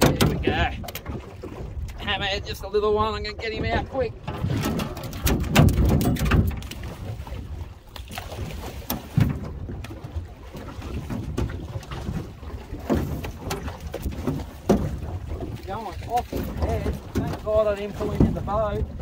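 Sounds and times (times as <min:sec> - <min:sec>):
shark thrashing with knocks: 0:00.0 - 0:01.1, 0:03.7 - 0:07.1, 0:08.0 - 0:10.0, 0:11.0 - 0:18.8
wind rumbling on microphone: 0:00.0 - 0:19.0.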